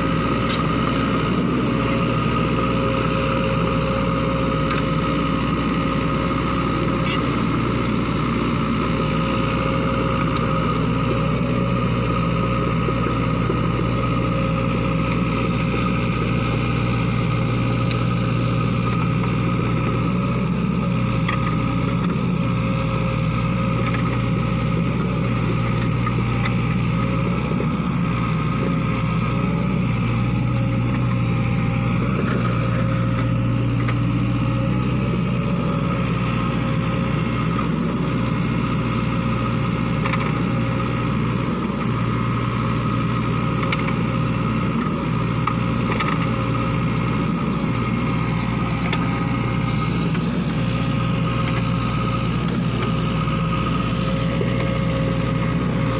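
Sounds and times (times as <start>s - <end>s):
excavator diesel engine running: 0.0s - 55.9s.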